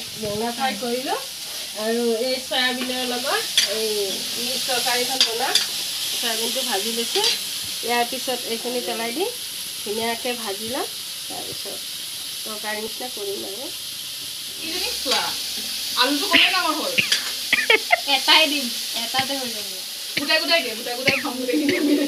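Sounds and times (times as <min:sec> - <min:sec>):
vegetables sizzling in a wok: 0:00.0 - 0:22.0.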